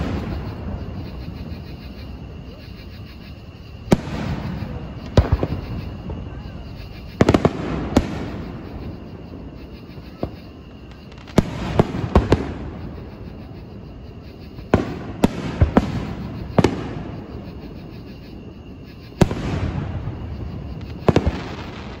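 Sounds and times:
fireworks bursting with echo: 0.0s - 1.7s, 3.8s - 13.2s, 14.6s - 17.5s, 19.1s - 22.0s.

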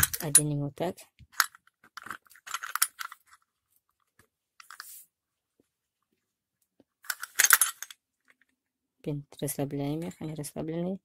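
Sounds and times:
metal parts clicking and rattling: 0.0s - 0.5s, 1.3s - 3.4s, 7.0s - 8.4s.

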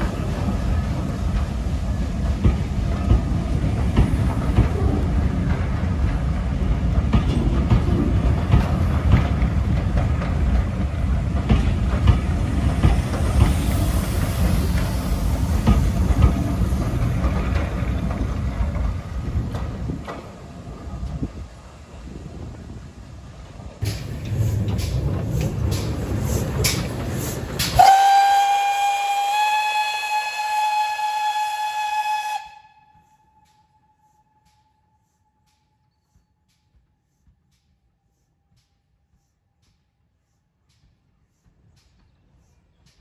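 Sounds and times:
train wheels clattering on rails: 0.0s - 21.5s, 23.5s - 33.8s.

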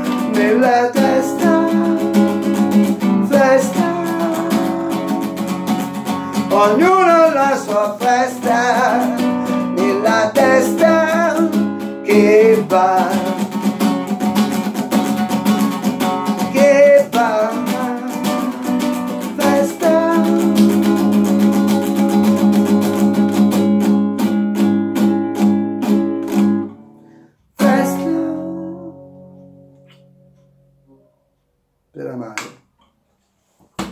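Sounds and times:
man singing: 0.0s - 13.8s, 16.3s - 23.1s, 27.6s - 29.0s
classical guitar strumming: 0.0s - 31.1s.

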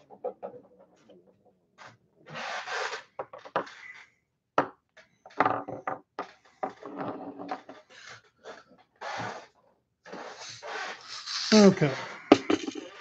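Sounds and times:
plastic pots rustling and rubbing: 6.5s - 12.3s.

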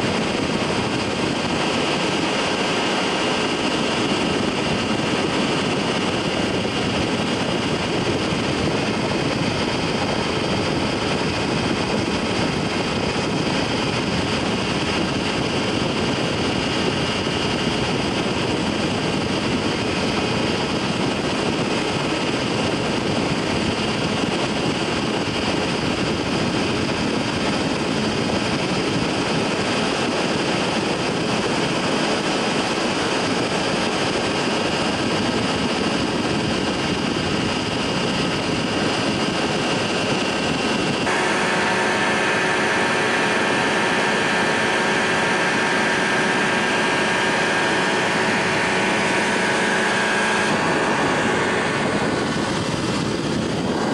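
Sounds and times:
light aircraft engine and propeller: 0.0s - 53.9s.

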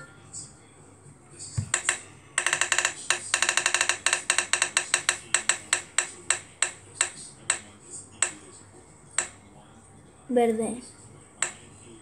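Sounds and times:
app wheel ticking: 1.7s - 8.4s, 9.2s - 9.4s.

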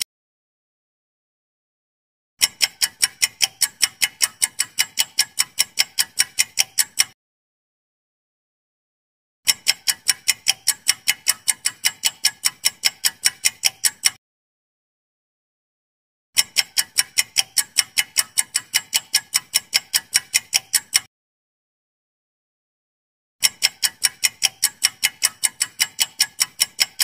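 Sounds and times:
countdown timer ticking: 2.4s - 7.2s, 9.5s - 14.2s, 16.4s - 21.1s, 23.4s - 27.0s.

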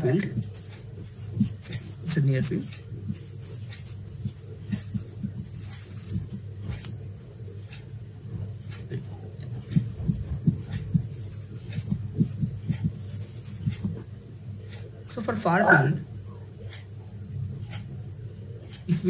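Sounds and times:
marker writing on whiteboard: 0.0s - 7.0s, 7.6s - 14.9s.

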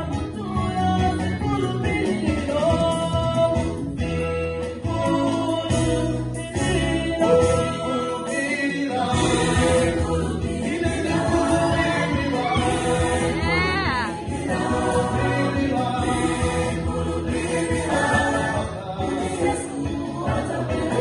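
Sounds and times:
choir singing gospel: 0.0s - 21.0s
electronic keyboard accompaniment: 0.0s - 21.0s.

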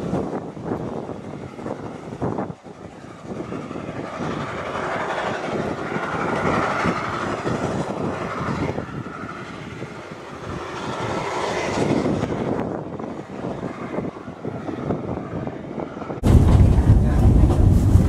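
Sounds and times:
wheel rumble: 16.1s - 18.0s
steam locomotive exhaust beats: 16.2s - 18.0s.

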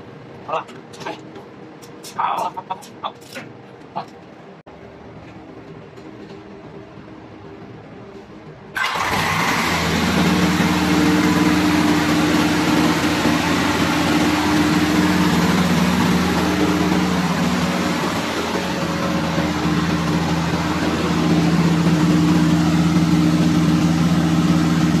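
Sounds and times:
diesel engine running steadily: 0.0s - 25.0s
diesel engine cranking and firing: 8.8s - 25.0s.

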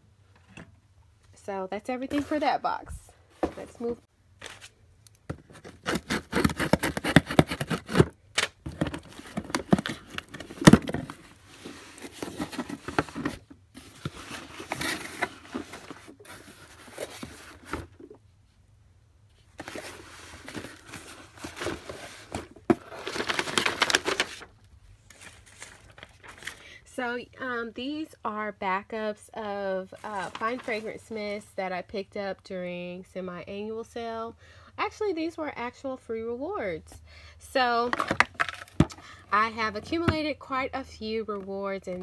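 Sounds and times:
packing tape ripping: 5.7s - 8.6s
plastic packing crinkling: 19.6s - 24.5s.

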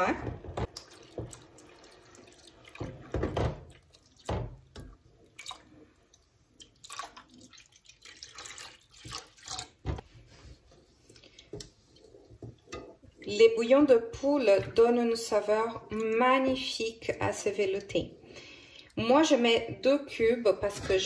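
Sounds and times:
liquid pouring and splashing: 0.4s - 13.2s.

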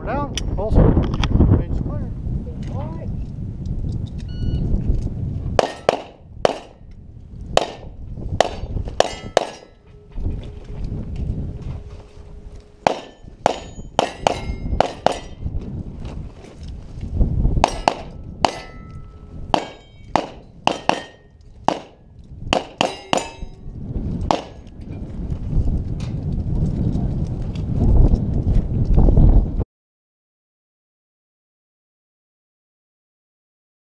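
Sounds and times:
pistol shots: 5.6s - 6.8s, 7.6s - 9.7s, 12.8s - 15.4s, 17.6s - 23.5s, 24.3s - 24.7s
steel plate targets ringing: 5.6s - 6.8s, 7.6s - 10.3s, 12.7s - 15.5s, 17.6s - 22.0s, 22.6s - 24.7s.

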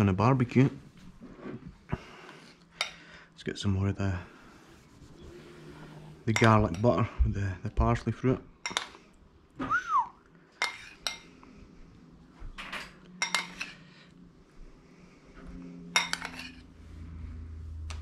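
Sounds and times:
metal spoon clinking on ceramic bowl: 10.6s - 11.3s, 13.2s - 13.8s, 16.0s - 16.6s.

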